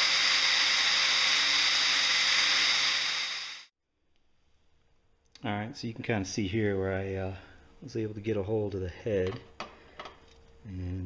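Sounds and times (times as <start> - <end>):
power drill drilling metal: 0.0 - 3.7.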